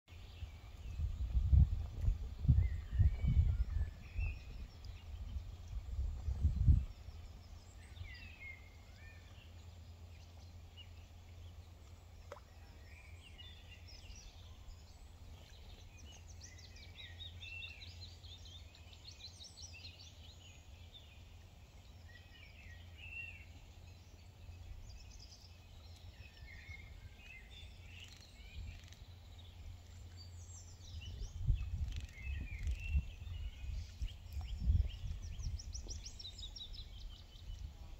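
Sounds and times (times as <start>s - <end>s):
wind rumble on microphone: 0.1s - 8.7s, 24.0s - 37.9s
birds chirping and trilling: 12.6s - 37.7s.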